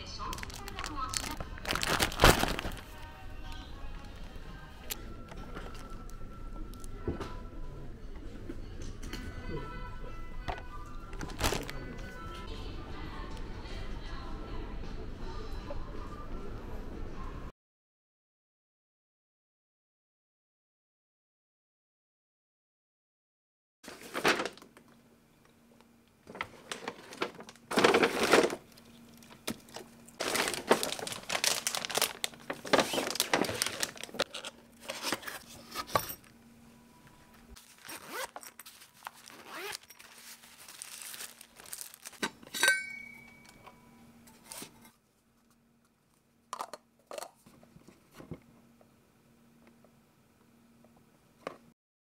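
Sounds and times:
faint hum: 0.0s - 17.5s, 23.9s - 51.7s
rustling and crinkling: 0.2s - 3.1s, 11.2s - 11.8s, 23.9s - 24.9s, 26.2s - 36.3s, 37.4s - 42.3s.

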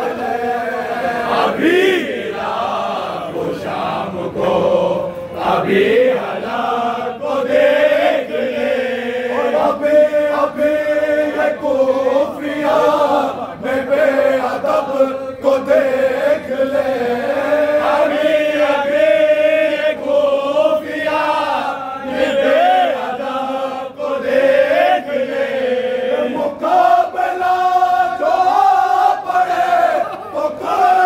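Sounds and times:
men chanting together: 0.0s - 31.0s.

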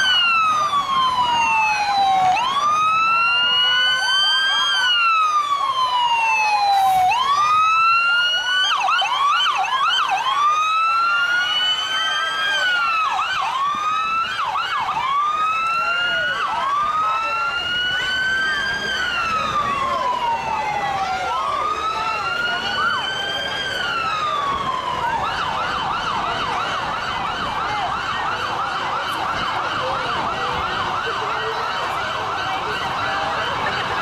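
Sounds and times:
siren slow wail: 0.0s - 34.0s
siren quick sweeps: 6.0s - 7.7s.

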